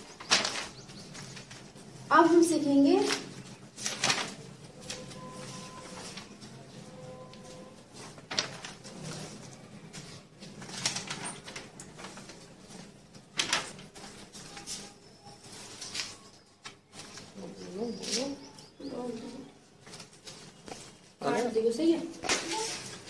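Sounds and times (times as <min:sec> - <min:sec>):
paper pages being leafed through: 0:00.0 - 0:02.0, 0:03.0 - 0:18.4, 0:22.2 - 0:23.0
paper rustles: 0:00.0 - 0:02.0, 0:02.9 - 0:18.4, 0:19.2 - 0:21.5, 0:22.2 - 0:23.0.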